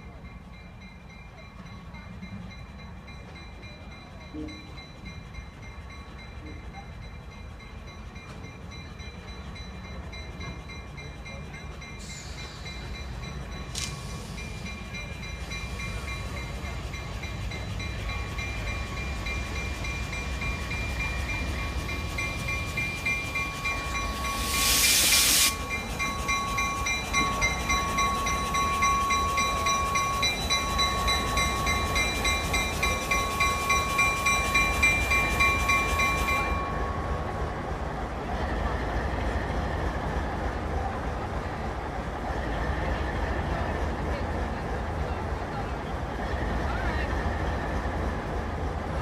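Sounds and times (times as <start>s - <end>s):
locomotive bell ringing: 0.0s - 37.8s
locomotive engine rumbling: 0.0s - 49.0s
loud hiss of air: 12.0s - 13.0s, 13.7s - 14.7s, 24.3s - 25.8s.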